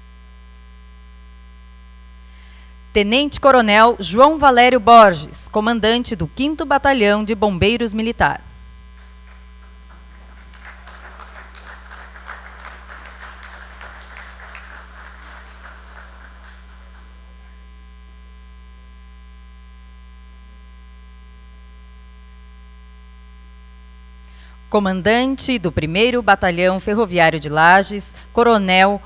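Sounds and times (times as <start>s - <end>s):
electrical mains hum: 0.0s - 29.0s
audience applauding: 9.0s - 17.7s.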